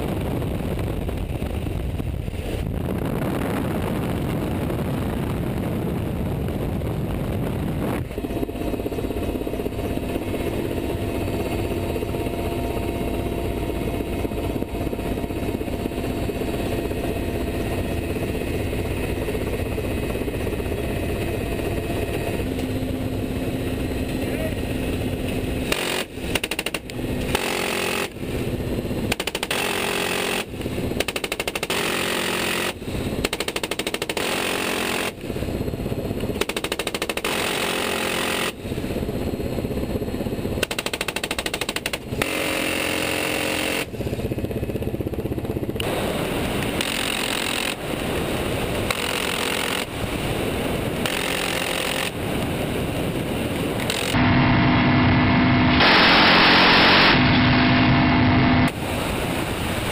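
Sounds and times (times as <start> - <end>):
helicopter engine and rotor: 0.0 - 59.9
minigun firing bursts: 25.6 - 35.2, 45.8 - 50.3, 51.0 - 52.2, 53.8 - 54.2.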